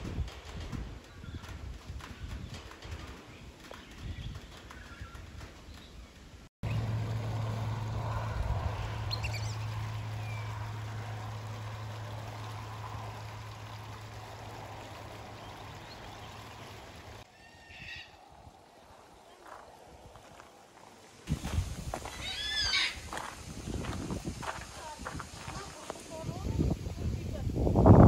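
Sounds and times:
outdoor rushing noise: 0.0s - 17.3s
low hum: 2.3s - 25.2s
high bird chirps: 9.0s - 10.6s.

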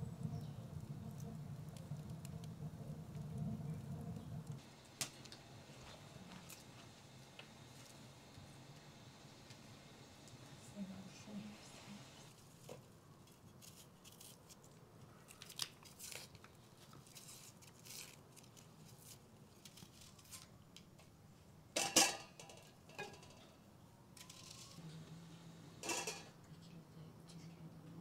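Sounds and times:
faint low hum: 0.0s - 13.4s, 21.8s - 28.0s
onion skins crackling and tearing: 13.3s - 20.6s.

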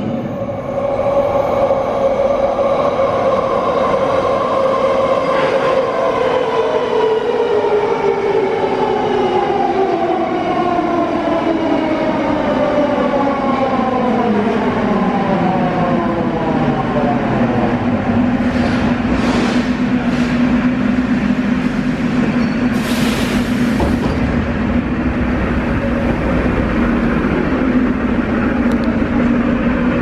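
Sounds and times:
wheels rumbling on rail: 13.9s - 30.0s.

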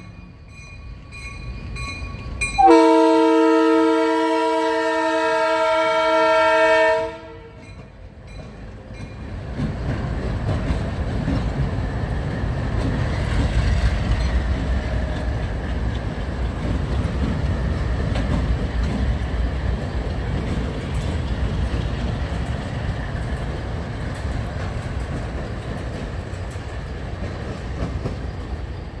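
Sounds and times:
train rumbling over crossing: 0.0s - 29.0s
locomotive horn: 2.6s - 7.7s.

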